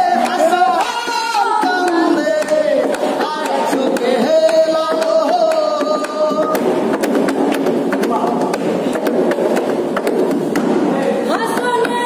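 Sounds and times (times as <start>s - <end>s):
woman singing: 11.3s - 12.0s.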